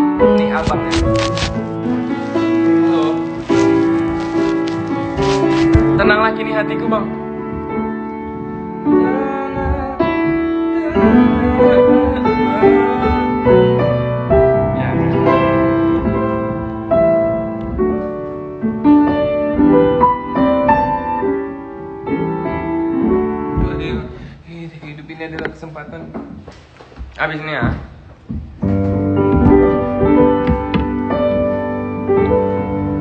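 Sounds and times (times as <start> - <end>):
slow piano music: 0.0 - 33.0.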